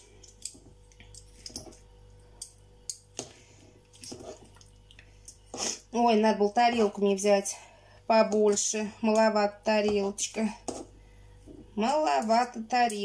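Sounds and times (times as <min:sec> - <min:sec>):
forks clicking on bowl: 0:11.8 - 0:13.0.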